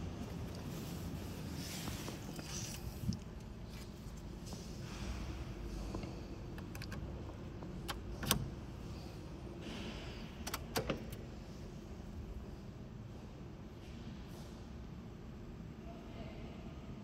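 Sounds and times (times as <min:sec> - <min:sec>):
key clicks in ignition: 0:06.5 - 0:07.1, 0:07.8 - 0:08.6, 0:10.4 - 0:11.2.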